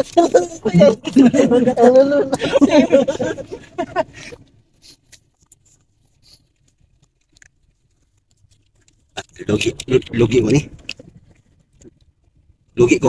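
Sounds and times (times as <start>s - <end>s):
person speaking: 0.0s - 4.0s.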